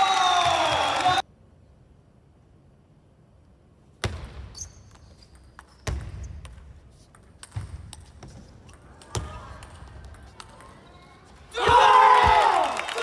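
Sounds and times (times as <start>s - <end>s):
shoe squeak on floor: 4.5s - 6.4s.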